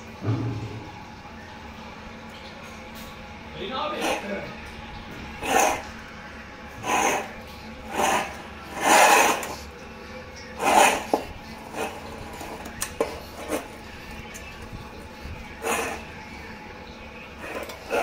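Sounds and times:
metal bowl scraping on concrete: 3.9s - 6.1s, 6.7s - 16.6s, 17.3s - 18.0s.

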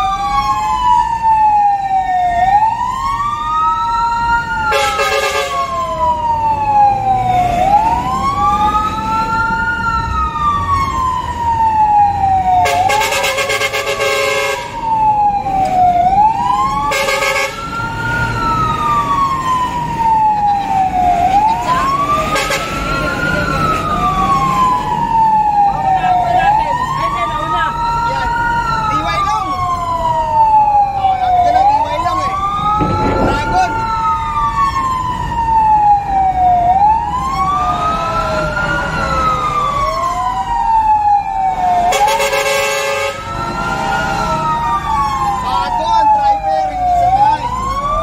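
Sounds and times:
fire engine siren wailing: 0.0s - 48.0s
road noise: 0.0s - 48.0s
truck engine: 4.2s - 46.2s
horn blasts: 4.7s - 5.7s, 12.6s - 14.8s, 16.9s - 17.6s, 22.3s - 22.9s, 41.9s - 43.2s.

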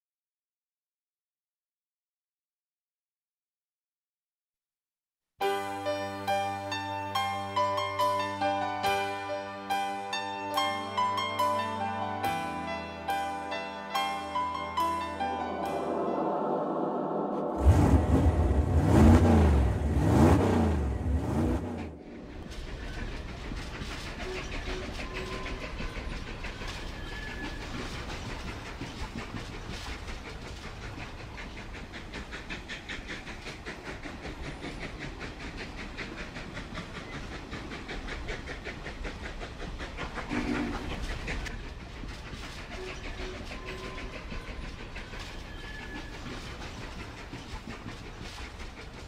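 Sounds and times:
vehicle rumbling and rattling: 17.6s - 24.0s.

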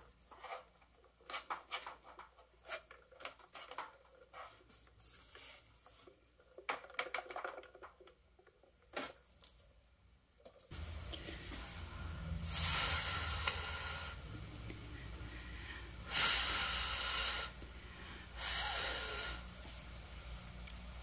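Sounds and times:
steady low hum: 10.7s - 21.0s
person blowing hard breaths: 11.2s - 19.7s.

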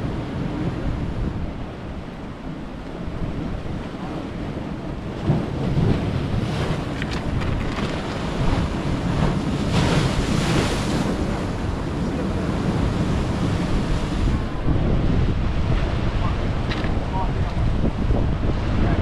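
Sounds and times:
surf breaking on rocky shore: 0.0s - 19.0s
wind buffeting microphone: 0.0s - 19.0s
wave crashing into spray: 5.2s - 19.0s.

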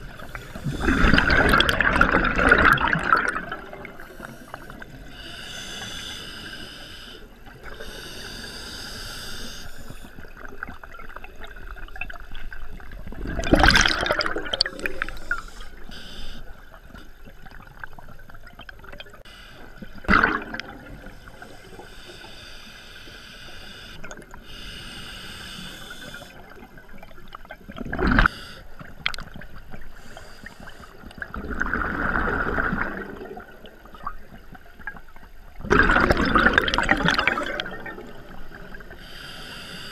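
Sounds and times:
exhaled bubbles bursting: 0.6s - 4.0s, 12.8s - 15.2s, 20.0s - 21.0s, 31.3s - 33.7s, 35.6s - 38.3s
hissing regulator inhalations: 4.0s - 10.2s, 21.2s - 26.4s.

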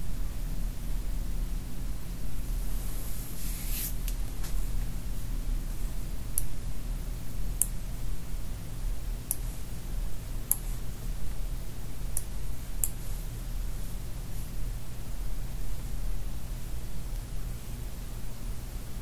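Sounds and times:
low electrical hum: 0.0s - 19.0s.

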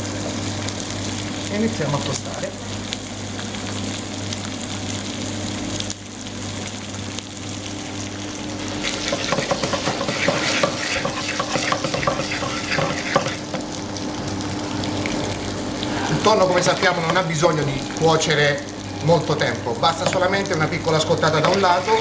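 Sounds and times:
fish sizzling in a frying pan: 0.0s - 22.0s
steady low hum: 7.7s - 22.0s.

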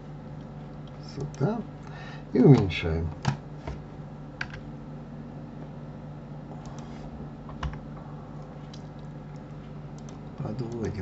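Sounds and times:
steady low hum: 0.0s - 11.0s
computer keyboard and mouse clicks: 8.7s - 11.0s.

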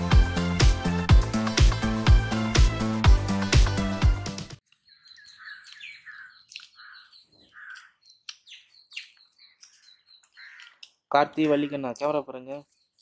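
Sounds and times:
faint birds chirping: 4.6s - 13.0s.

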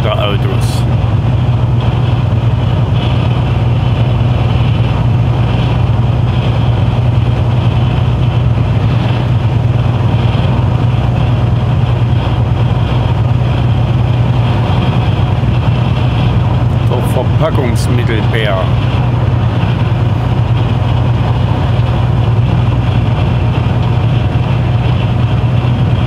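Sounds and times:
truck engine and road noise drone: 0.0s - 26.0s.

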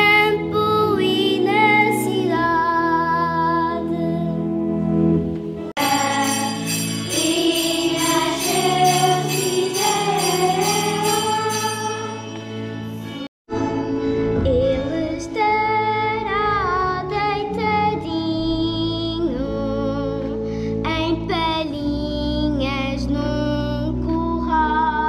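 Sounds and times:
children's choir singing a hymn: 5.8s - 12.6s
steady percussion beat: 5.8s - 12.6s.

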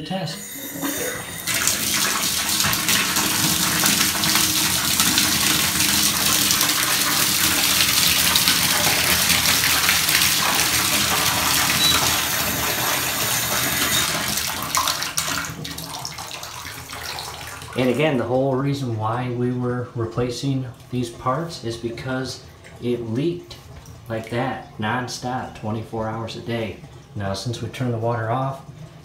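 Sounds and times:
water running into bathtub: 0.0s - 19.6s.

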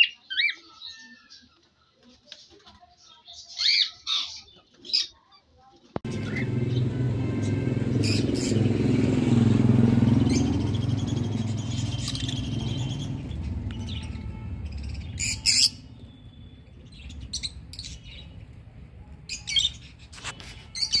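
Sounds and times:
lovebirds shrill chirps: 6.1s - 9.3s, 9.9s - 18.6s, 19.2s - 21.0s.

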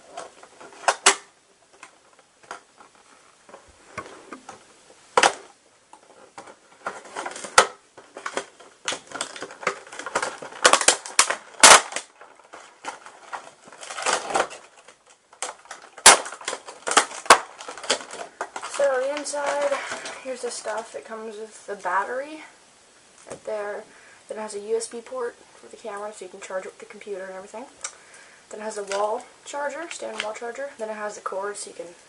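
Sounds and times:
plastic packaging crackling: 0.0s - 22.2s, 27.8s - 31.8s
sharp plastic snaps: 0.1s - 2.7s, 5.2s - 20.9s.

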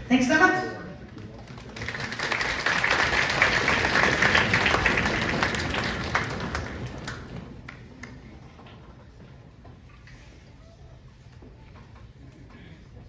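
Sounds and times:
audience applauding: 1.1s - 8.5s.

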